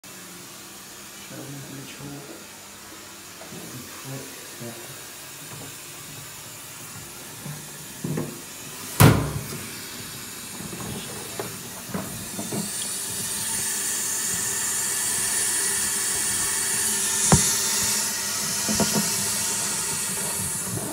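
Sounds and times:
toilet cistern flushing: 4.4s - 20.9s
sharp knock: 17.3s - 17.6s.

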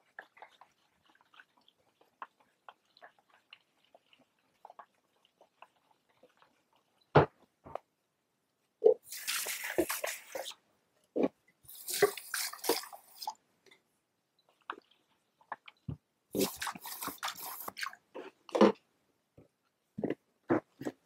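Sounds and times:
liquid sloshing in plastic tank: 9.0s - 10.6s.

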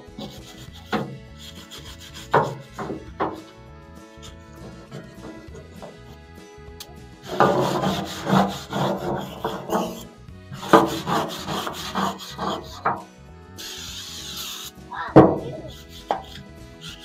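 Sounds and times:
brush scrubbing steel: 0.0s - 3.4s, 4.2s - 6.1s, 7.2s - 13.0s, 13.6s - 17.0s
aerosol can hissing: 13.6s - 17.0s.

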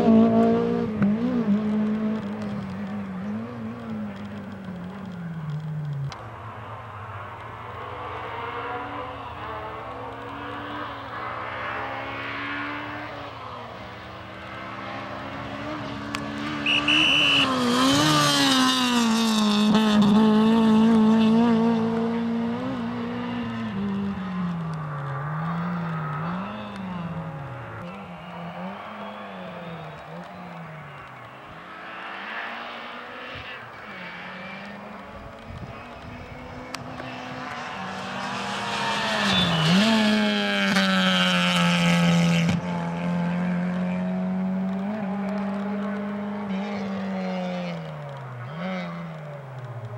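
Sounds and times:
rally car engine revving past: 0.0s - 4.6s, 8.0s - 31.0s, 31.6s - 49.5s.

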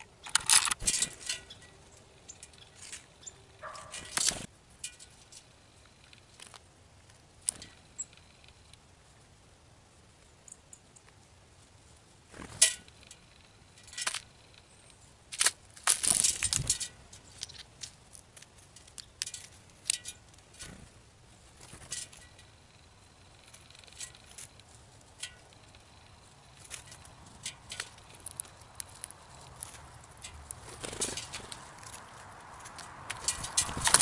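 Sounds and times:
rustling: 11.0s - 34.0s.

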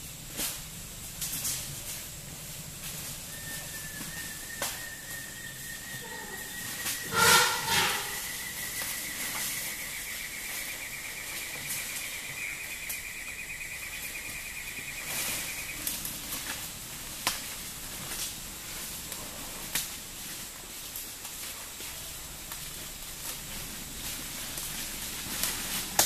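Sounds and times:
rainforest ambience: 0.0s - 26.0s
insect buzzing: 4.2s - 16.1s.

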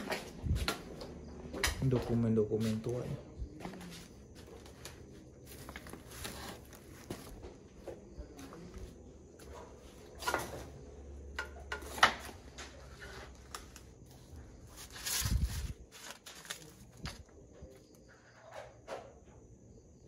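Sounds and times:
papers rustling: 3.7s - 7.8s, 12.3s - 18.0s.

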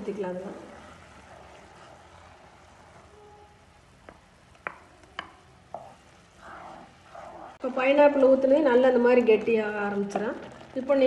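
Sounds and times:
syrup simmering hiss: 0.0s - 11.0s.

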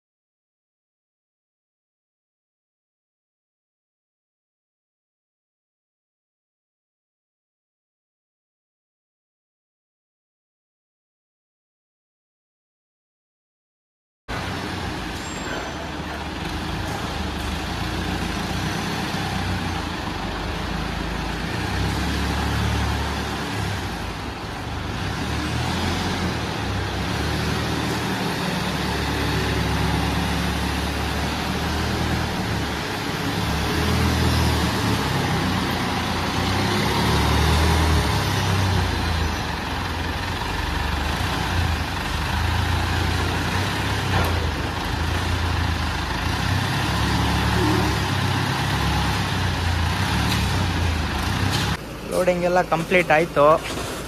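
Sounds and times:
forklift engine rumbling: 14.3s - 54.0s.

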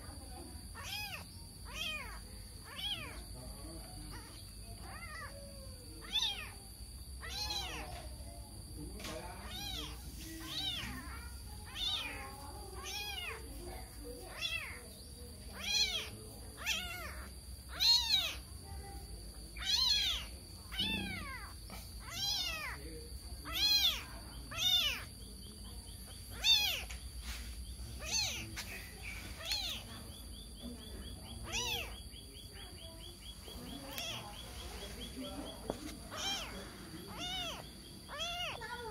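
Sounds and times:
kitten meowing: 0.7s - 3.2s, 4.1s - 6.6s, 7.2s - 8.0s, 9.4s - 13.4s, 14.3s - 14.8s, 15.5s - 18.5s, 19.6s - 25.2s, 26.3s - 26.9s, 28.0s - 28.6s, 29.4s - 29.9s, 31.4s - 32.0s, 33.8s - 34.4s, 35.9s - 38.9s.

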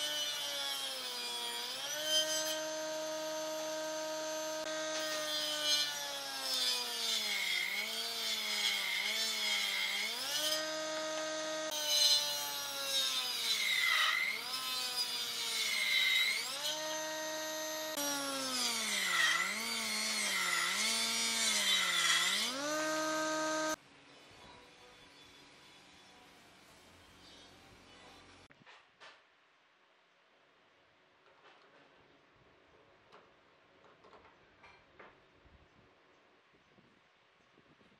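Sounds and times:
circular saw ripping wood: 0.0s - 23.8s.

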